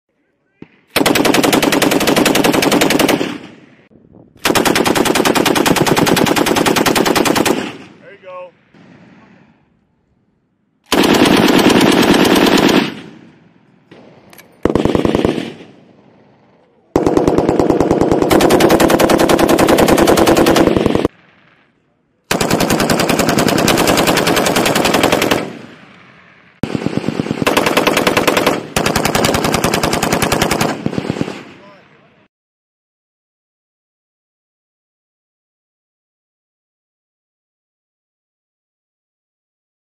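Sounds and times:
machine-gun bursts: 0:01.0 - 0:03.4, 0:04.4 - 0:07.8, 0:10.9 - 0:13.0, 0:14.6 - 0:15.6, 0:17.0 - 0:21.1, 0:22.3 - 0:25.6, 0:26.6 - 0:31.4.

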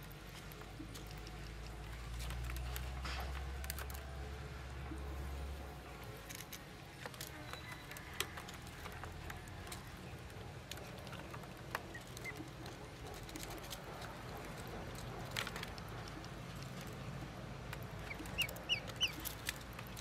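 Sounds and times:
ducklings pecking in plastic bowl: 0:00.0 - 0:05.1, 0:06.0 - 0:20.0
faint duckling peeps: 0:18.0 - 0:19.3.

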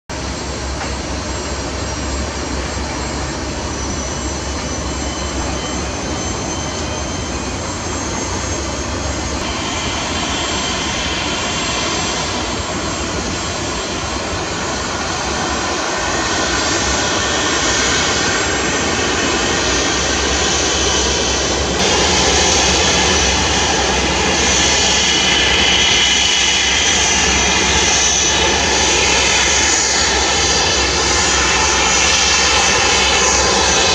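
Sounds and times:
jet engines whining: 0:00.1 - 0:33.9.

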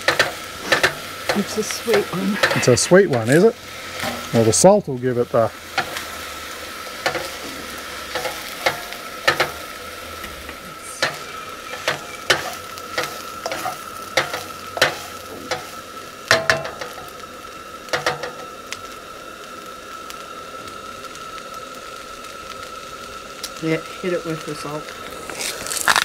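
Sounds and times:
spatula scraping a pan: 0:00.0 - 0:04.3, 0:07.0 - 0:09.7, 0:11.0 - 0:17.0
rice sizzling in a wok: 0:00.0 - 0:26.0.

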